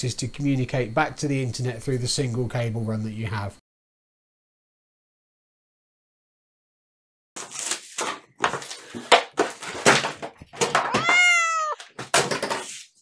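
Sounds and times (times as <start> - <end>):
cat meowing: 10.8 - 11.9.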